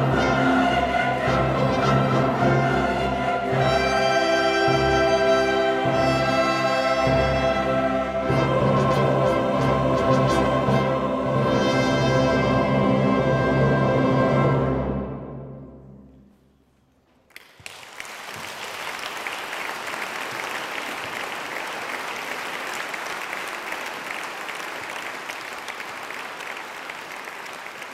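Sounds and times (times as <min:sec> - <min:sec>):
choir and orchestra chord: 0:00.0 - 0:16.0
audience applauding: 0:17.3 - 0:27.9.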